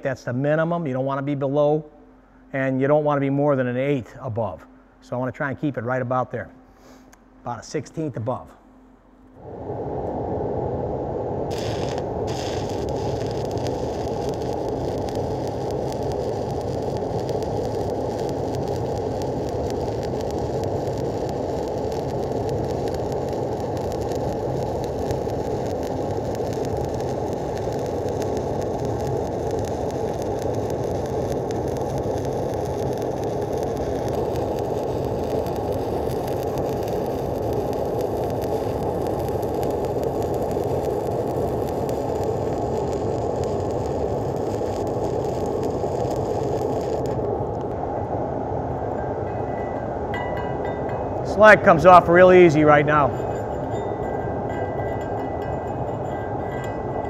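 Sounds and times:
welding arc burning: 11.1 - 47.8, 51.2 - 57.0.

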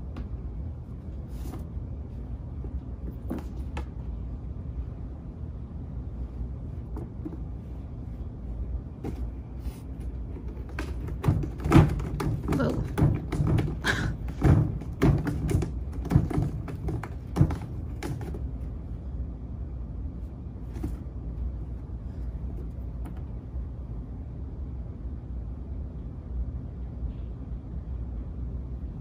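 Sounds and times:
low steady rumble: 0.0 - 29.0
cat scratching cardboard: 8.9 - 18.8.

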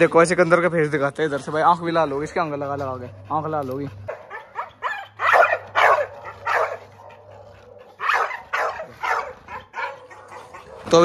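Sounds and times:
dog barking: 4.1 - 11.0.

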